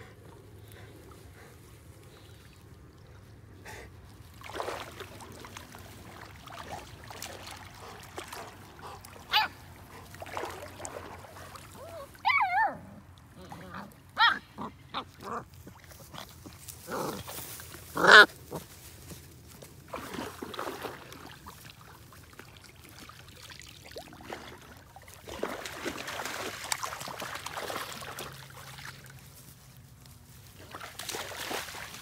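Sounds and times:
dog barking: 0:09.3 - 0:09.6.

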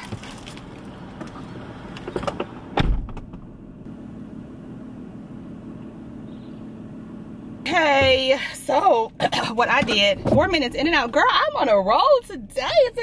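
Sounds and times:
car door thud: 0:02.1 - 0:03.5
faint steady hum: 0:03.4 - 0:13.0.

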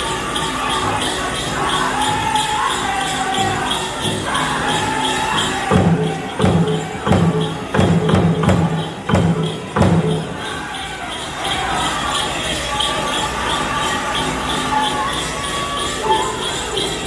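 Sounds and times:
group singing: 0:00.0 - 0:17.0
big drum beating: 0:05.6 - 0:10.7.

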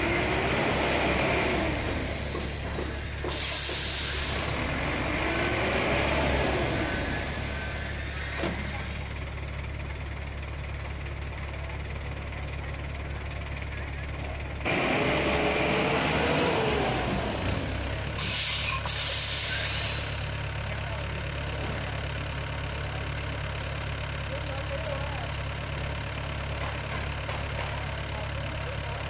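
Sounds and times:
diesel engine running: 0:00.0 - 0:29.0
short sharp hisses: 0:03.3 - 0:04.5, 0:07.7 - 0:09.0, 0:18.2 - 0:20.3.

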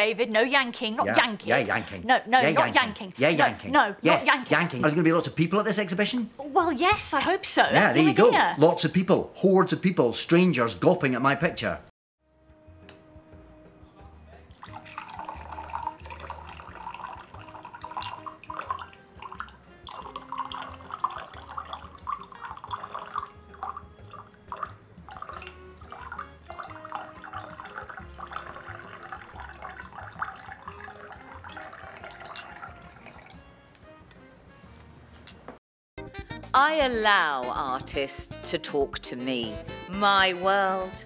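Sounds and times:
water pouring into a glass: 0:14.5 - 0:33.5.

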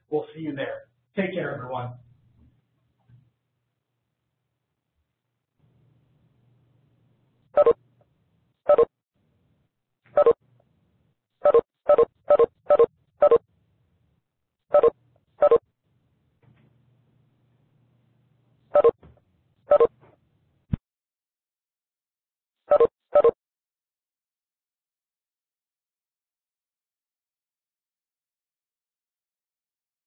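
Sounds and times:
phone key beeps: 0:10.2 - 0:10.4, 0:14.7 - 0:15.6, 0:18.8 - 0:19.0, 0:22.7 - 0:23.4.

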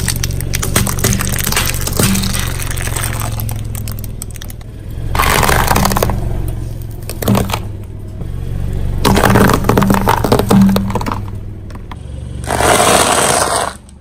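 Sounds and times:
plastic object crunching: 0:00.0 - 0:04.6, 0:05.2 - 0:07.7, 0:09.0 - 0:13.9
sharp crack: 0:00.0 - 0:06.3
low engine hum: 0:00.0 - 0:14.0
tyre rolling over plastic items: 0:09.0 - 0:11.3.

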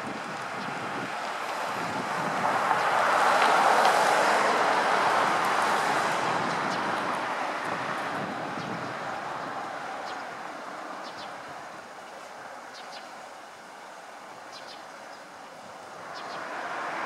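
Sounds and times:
vehicle passing: 0:01.3 - 0:09.9, 0:16.0 - 0:17.0.

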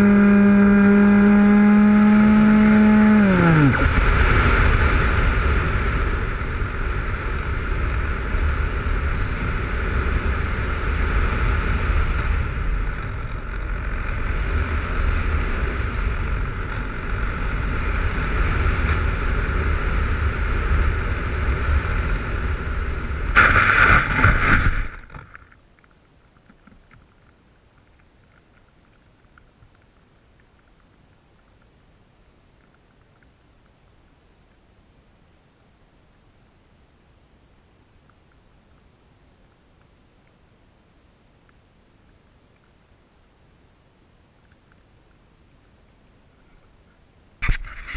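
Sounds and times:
model airplane motor drone: 0:00.0 - 0:04.3
scraping on grass: 0:23.4 - 0:25.5.

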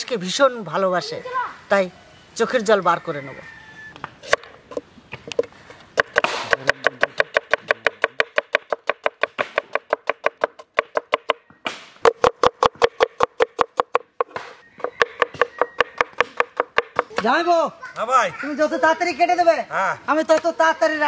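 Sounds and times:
knife chopping on wooden board: 0:04.2 - 0:17.3.

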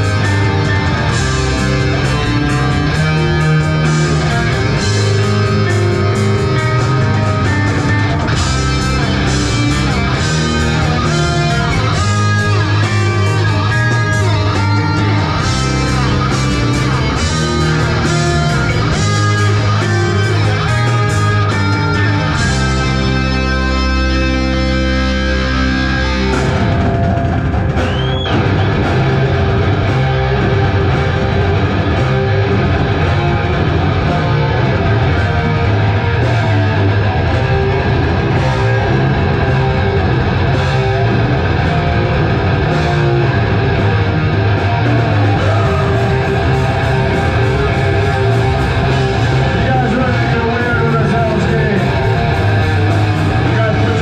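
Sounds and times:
heavy rock band playing: 0:00.0 - 0:54.0
rising guitar squeal: 0:00.0 - 0:54.0.

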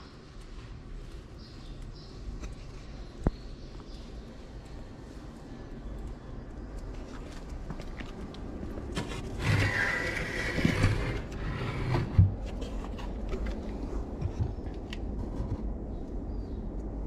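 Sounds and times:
light clicks: 0:00.4 - 0:08.8
wooden roof scraping: 0:08.9 - 0:15.7.

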